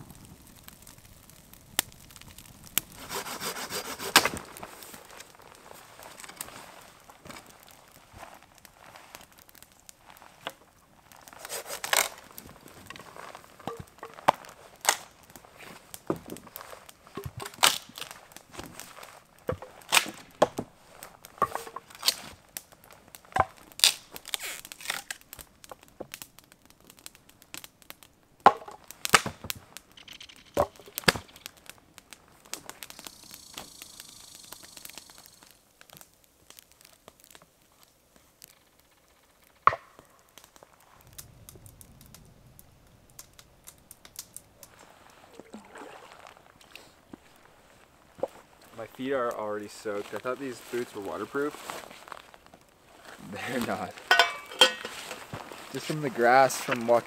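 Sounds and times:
hatchet chopping firewood: 2.9 - 4.6, 17.1 - 18.8, 19.5 - 20.7, 21.3 - 22.2, 28.4 - 29.6, 30.5 - 31.7, 39.7 - 40.1, 54.0 - 55.2.

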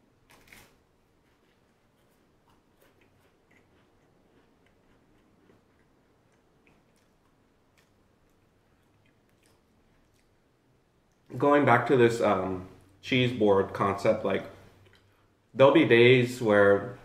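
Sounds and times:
cracker chewing crunches: 0.2 - 11.4.

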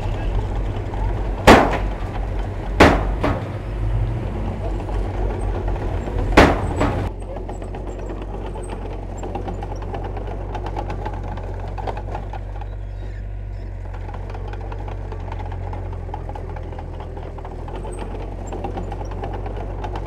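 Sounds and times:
heavy diesel engine running: 0.0 - 20.0
loud bang: 1.1 - 4.2, 6.1 - 7.1.

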